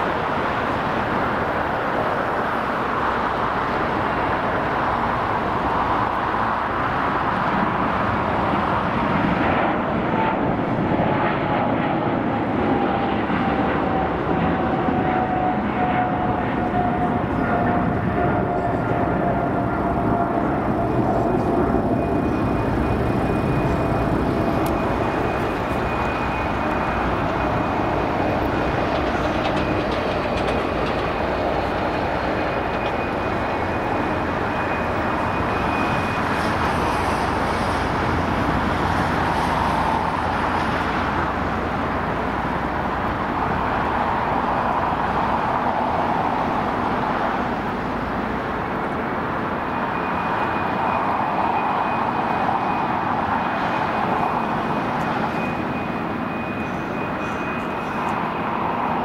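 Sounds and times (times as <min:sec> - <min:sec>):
jet engines roaring: 0:00.0 - 0:59.0
faint high whine: 0:15.0 - 0:46.4.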